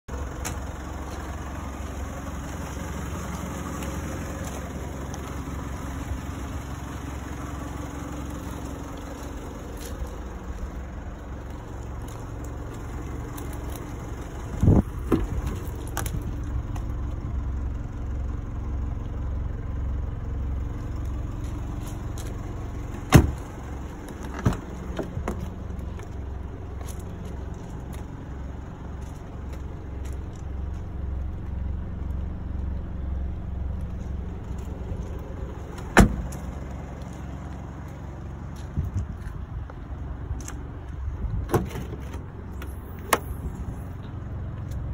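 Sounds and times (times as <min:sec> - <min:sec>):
car engine idling: 0:00.0 - 0:44.9
car door click: 0:23.1 - 0:23.4, 0:35.9 - 0:36.4
car door knocks: 0:23.1 - 0:23.4.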